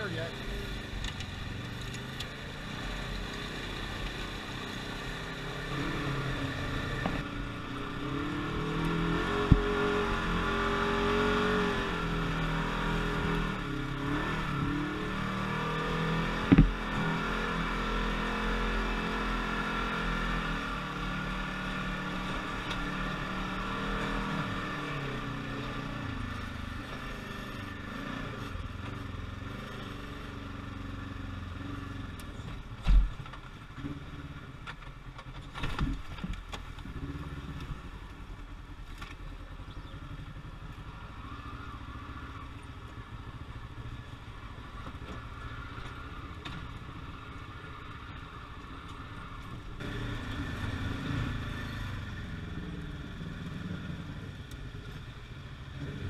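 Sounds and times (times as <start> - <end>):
engine revving: 0.0 - 32.4, 49.4 - 54.6
sharp knocks: 16.4 - 16.8.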